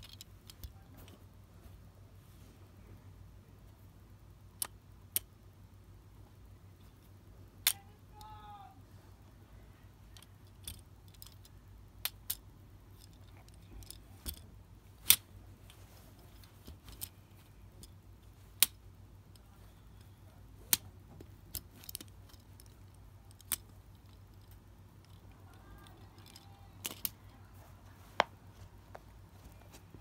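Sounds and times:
magnetic rings clicking together: 21.5s - 27.4s.

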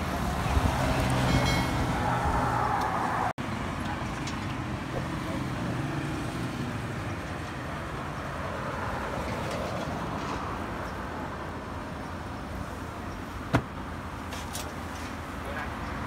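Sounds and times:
road traffic rumbling: 0.0s - 16.0s.

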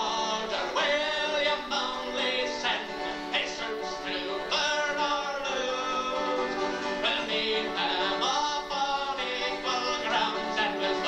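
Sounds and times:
man singing a ballad: 0.0s - 6.4s, 7.0s - 11.0s
strummed acoustic guitars: 0.0s - 11.0s.

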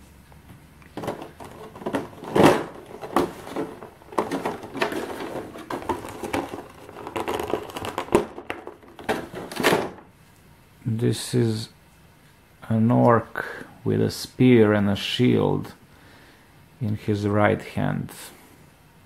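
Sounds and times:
plastic tray crinkling and clicking: 0.8s - 10.1s.

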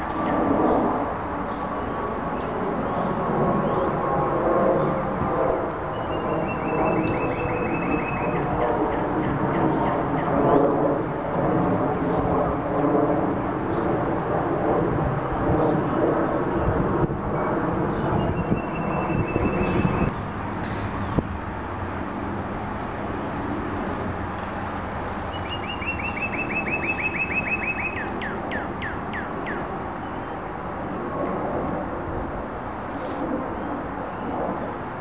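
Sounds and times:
jet engines rumbling overhead: 0.0s - 35.0s
songbird trilling: 5.9s - 8.4s, 18.2s - 20.1s, 25.3s - 29.7s.

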